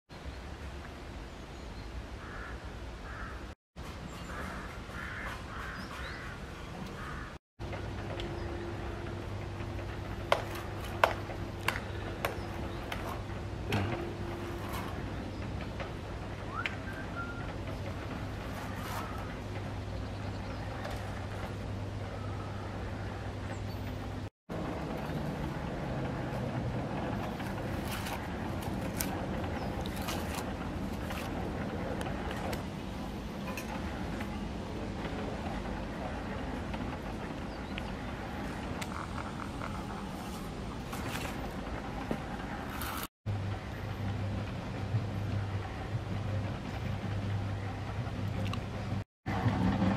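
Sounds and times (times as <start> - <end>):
outdoor rumble with low hum: 2.0 - 49.9
crows cawing: 2.2 - 3.5, 4.3 - 7.4.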